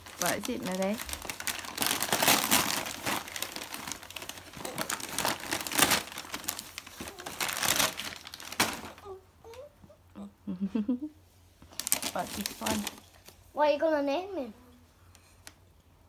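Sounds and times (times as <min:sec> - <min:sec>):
wrapping paper crinkling: 0:00.0 - 0:09.1, 0:11.7 - 0:13.3.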